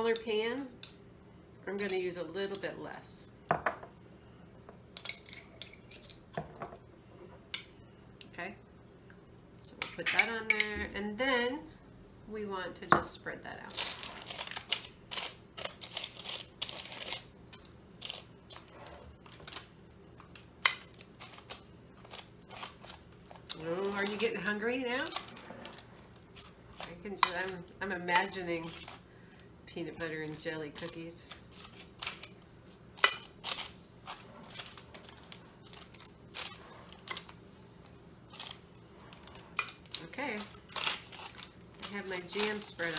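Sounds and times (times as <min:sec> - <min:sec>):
parchment paper crinkling: 0:13.7 - 0:17.3, 0:33.4 - 0:37.4, 0:38.3 - 0:42.9.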